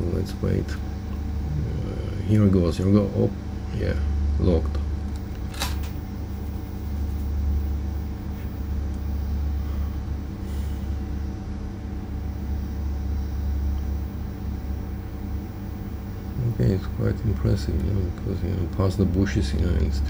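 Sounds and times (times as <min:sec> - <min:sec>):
steady low hum: 0:00.0 - 0:20.0
sharp click: 0:05.1 - 0:06.0.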